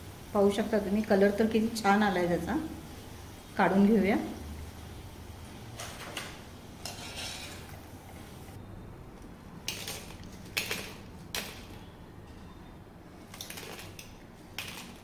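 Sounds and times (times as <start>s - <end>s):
frying oil sizzling: 0.0s - 8.6s.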